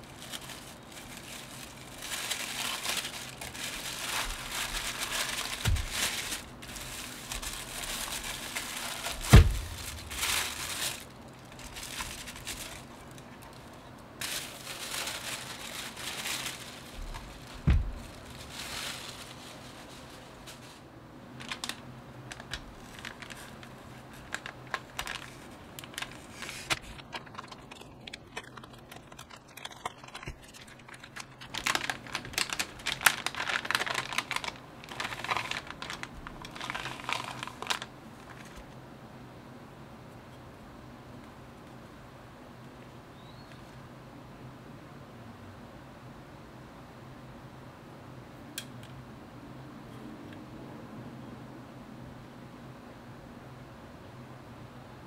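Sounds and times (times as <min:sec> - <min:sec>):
paper and foil bag crinkling: 0:00.0 - 0:38.8
dull thumps: 0:05.2 - 0:06.8, 0:07.4 - 0:11.0, 0:17.0 - 0:18.3.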